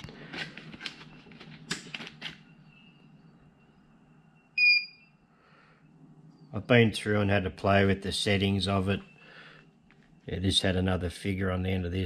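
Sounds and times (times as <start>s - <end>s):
short electronic beep: 4.6s - 5.1s.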